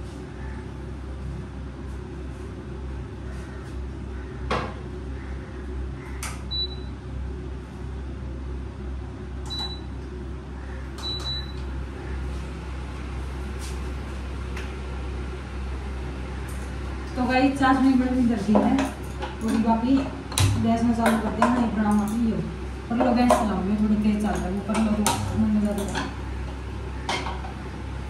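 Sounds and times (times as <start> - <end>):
steady low hum: 0.0 - 28.0
utensils knocking and clinking: 18.4 - 22.3, 22.9 - 26.2.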